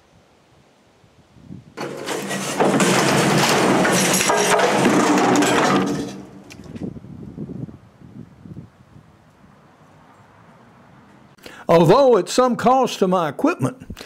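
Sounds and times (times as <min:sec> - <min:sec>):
scattered knocks: 0:01.8 - 0:06.6
metal crashing and wood cracking: 0:01.8 - 0:06.8.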